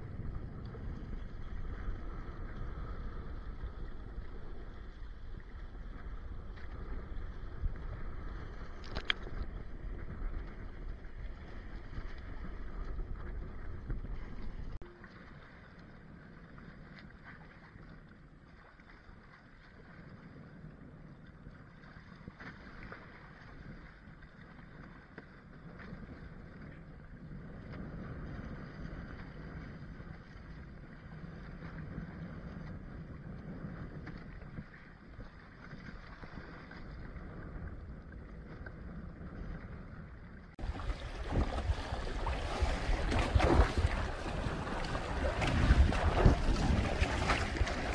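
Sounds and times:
wind buffeting microphone: 0:00.0 - 0:14.8, 0:25.8 - 0:47.9
water splashing along hulls: 0:00.0 - 0:47.9.

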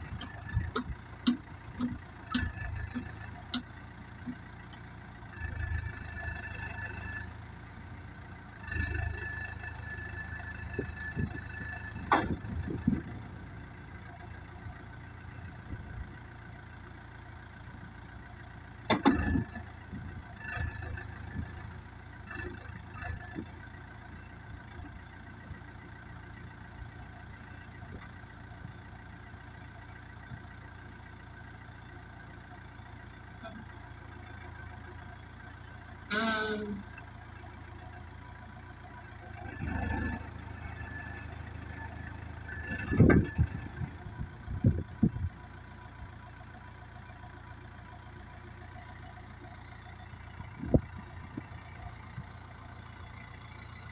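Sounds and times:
diesel engine running: 0:00.0 - 0:53.9
short high-pitched sound: 0:36.1 - 0:36.8.

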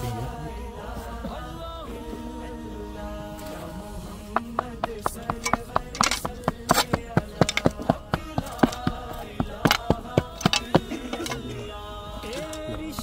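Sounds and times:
person singing slow melody: 0:00.0 - 0:13.0
spades striking soil: 0:03.4 - 0:13.0.

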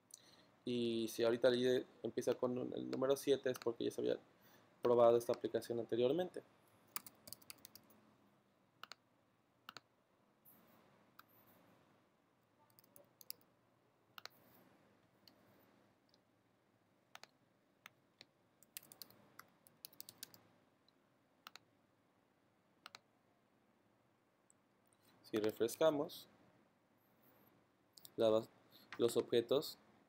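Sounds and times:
keyboard typing: 0:06.9 - 0:08.0, 0:08.8 - 0:09.0, 0:12.6 - 0:13.5, 0:17.1 - 0:20.4, 0:21.4 - 0:21.7, 0:22.8 - 0:23.0
mouse clicks: 0:08.8 - 0:09.0, 0:12.7 - 0:13.5, 0:14.2 - 0:14.4, 0:17.1 - 0:20.4, 0:21.4 - 0:21.7, 0:22.8 - 0:23.0.

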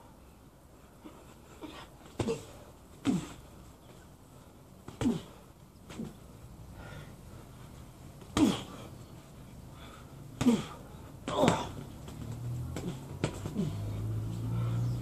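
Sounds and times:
boxing gloves hitting: 0:01.8 - 0:03.5, 0:04.8 - 0:06.3, 0:08.2 - 0:08.9, 0:10.3 - 0:14.3
person grunting: 0:10.4 - 0:11.9, 0:12.8 - 0:14.2.

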